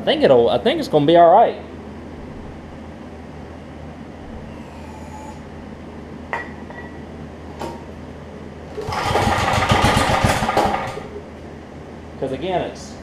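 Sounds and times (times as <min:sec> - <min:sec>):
steady hum: 0:00.0 - 0:13.0
recoil starter pull: 0:08.8 - 0:11.0
engine cranking with rapid chugging: 0:08.8 - 0:11.1.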